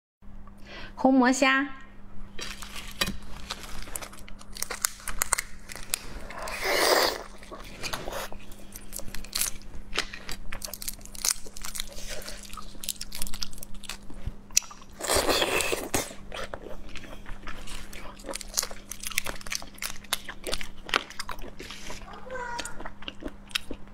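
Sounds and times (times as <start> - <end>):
shrimp shells crackling: 3.4 - 7.4, 8.7 - 14.1
chewing and mouth sounds: 3.8 - 23.9.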